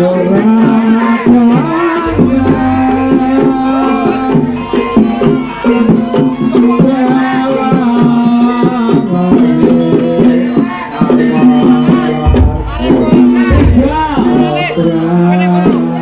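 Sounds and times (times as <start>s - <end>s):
hand drum strokes: 1.5s - 9.6s, 11.3s - 14.8s
gliding melody line: 2.0s - 7.7s
held pitched tones: 2.0s - 8.3s, 11.9s - 14.7s.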